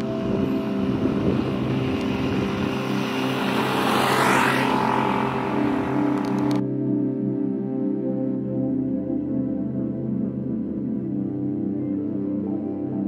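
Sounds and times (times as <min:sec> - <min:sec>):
whooshing noise: 0:00.0 - 0:06.6
ambient background music: 0:00.0 - 0:13.0.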